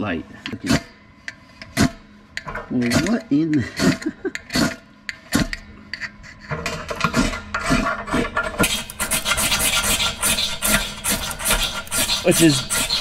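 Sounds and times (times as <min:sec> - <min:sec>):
striker scraping ferro rod: 0:05.3 - 0:13.0.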